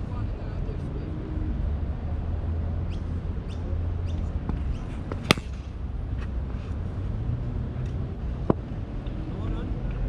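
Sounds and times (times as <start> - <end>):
cricket bat striking ball: 4.5 - 5.8.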